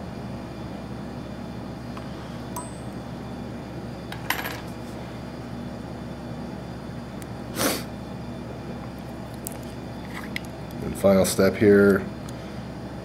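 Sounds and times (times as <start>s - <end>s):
low hum: 2.5s - 3.3s.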